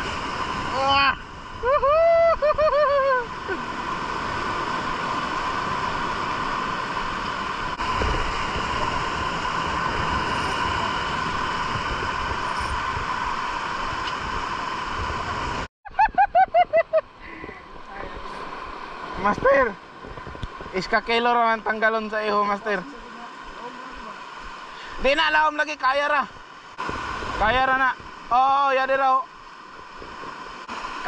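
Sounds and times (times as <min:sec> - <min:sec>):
boat engine droning: 0:00.0 - 0:15.7
water noise: 0:00.0 - 0:31.0
wind: 0:00.0 - 0:31.0.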